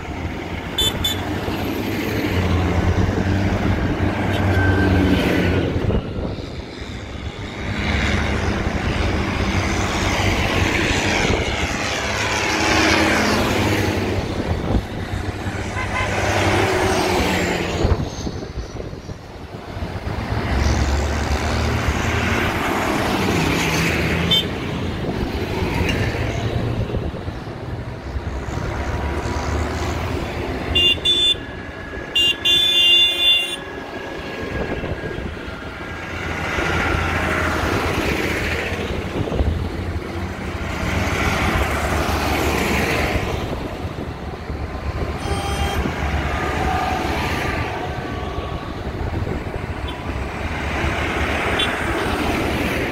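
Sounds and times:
diesel tractors driving past: 0:00.0 - 0:52.9
vehicle horn toots: 0:00.8 - 0:01.3, 0:15.7 - 0:16.2, 0:30.7 - 0:31.4, 0:32.2 - 0:33.6, 0:45.2 - 0:46.0.

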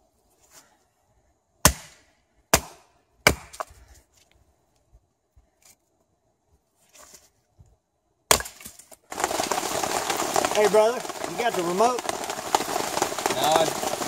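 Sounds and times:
hatchet chopping wood: 0:01.6 - 0:03.7, 0:08.3 - 0:08.8
soft rustle: 0:03.8 - 0:07.7.

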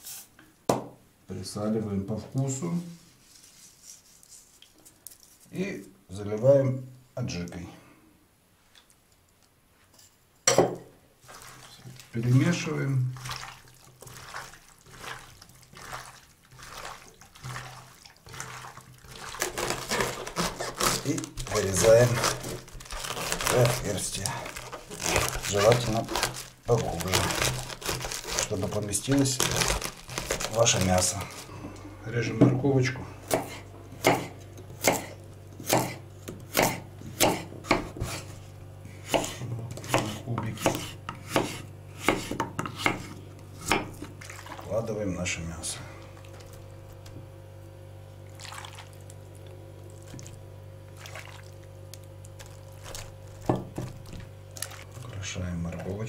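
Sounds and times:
hands mixing wet chicken: 0:11.2 - 0:33.7, 0:38.1 - 0:56.0
knife chopping on wooden board: 0:33.3 - 0:38.3, 0:39.0 - 0:44.1, 0:53.4 - 0:54.2.

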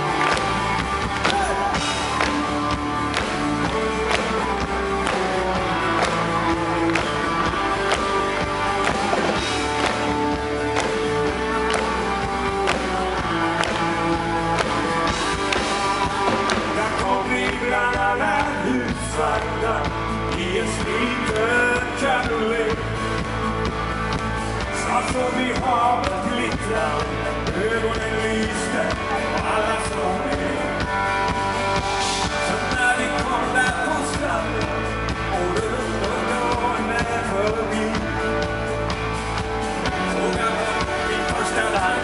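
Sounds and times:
live pop-rock band playing: 0:00.0 - 0:42.0
man singing: 0:15.8 - 0:23.4, 0:24.6 - 0:31.2, 0:31.8 - 0:38.9, 0:39.8 - 0:42.0.

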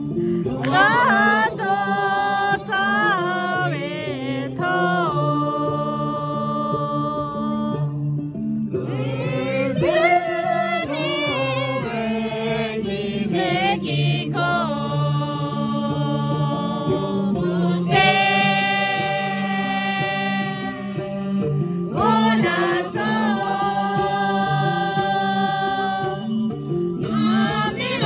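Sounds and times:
voices singing: 0:00.0 - 0:07.9, 0:08.8 - 0:28.0
sustained low instrumental notes: 0:00.0 - 0:28.0.

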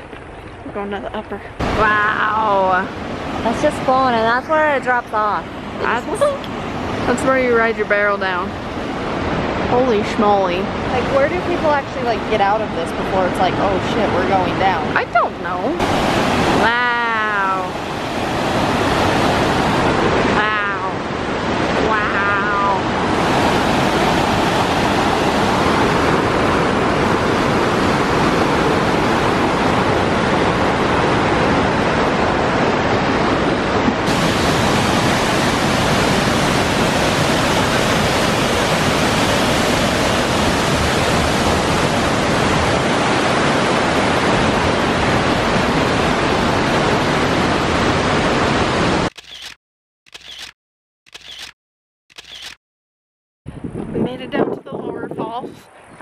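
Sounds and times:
waterfall roar: 0:00.0 - 0:49.1.

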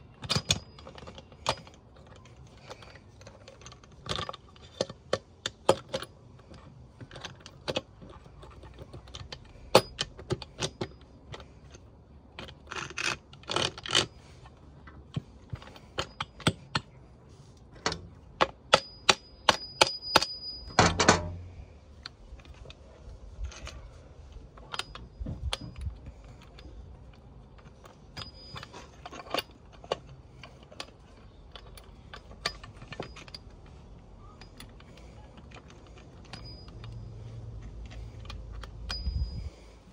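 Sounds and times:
metal gears clinking: 0:24.6 - 0:39.9.

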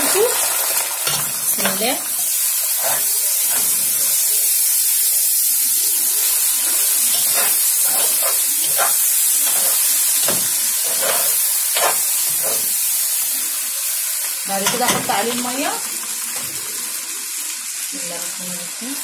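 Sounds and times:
rice sizzling in hot oil: 0:00.0 - 0:19.0
spoon scraping through rice: 0:06.6 - 0:12.8.

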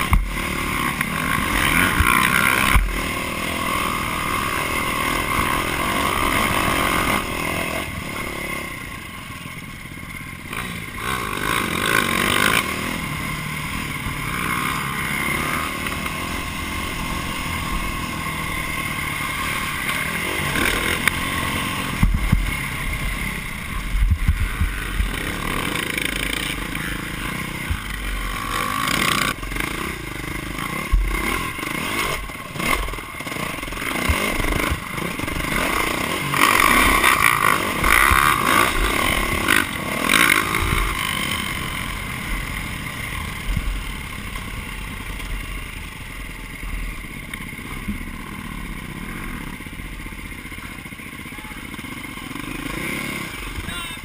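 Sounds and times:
dirt bike engine revving: 0:00.0 - 0:54.0
thuds and clatter from bumps: 0:22.0 - 0:22.5.

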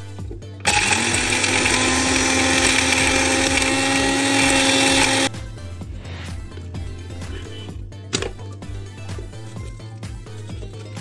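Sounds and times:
electric blender grinding spices: 0:00.6 - 0:05.3.

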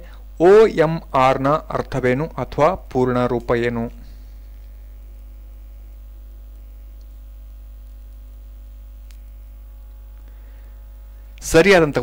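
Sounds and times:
faint hiss: 0:00.0 - 0:12.0
steady low hum: 0:00.0 - 0:12.0
faint click: 0:09.0 - 0:09.3.

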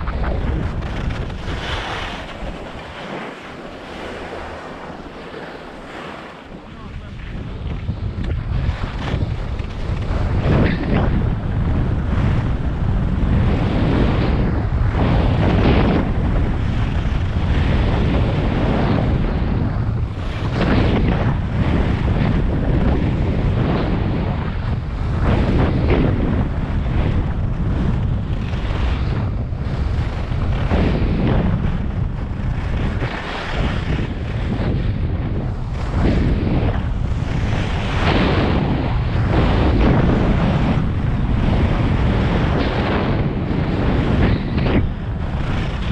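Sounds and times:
skis scraping snow: 0:00.0 - 0:11.0
wind buffeting microphone: 0:00.0 - 0:45.9.

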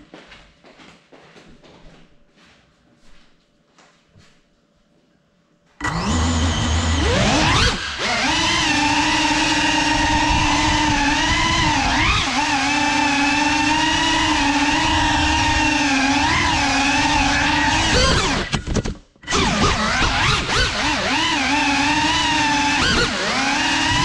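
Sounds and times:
drone motors whining: 0:05.8 - 0:24.0.

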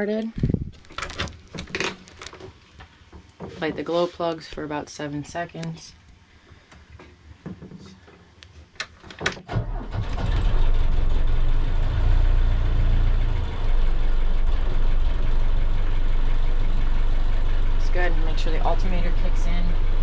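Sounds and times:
diesel engine starting and idling: 0:09.5 - 0:20.0.

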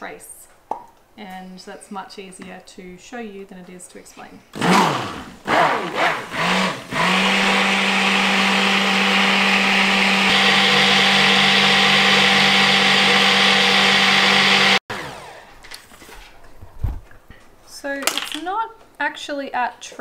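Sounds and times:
immersion blender motor hum: 0:04.6 - 0:15.5.

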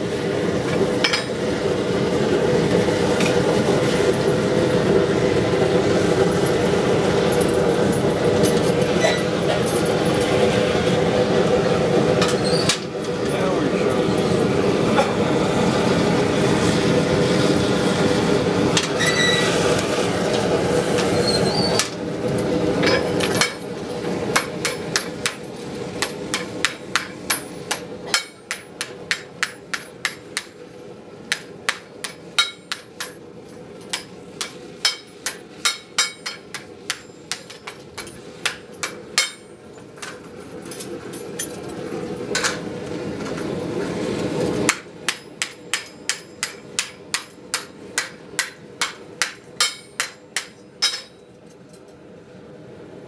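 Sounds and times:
gas forge burners rushing: 0:00.0 - 0:53.0
hammer striking steel: 0:22.8 - 0:23.7, 0:24.3 - 0:25.4, 0:26.0 - 0:30.6, 0:31.3 - 0:33.2, 0:33.9 - 0:39.6, 0:44.7 - 0:51.3.

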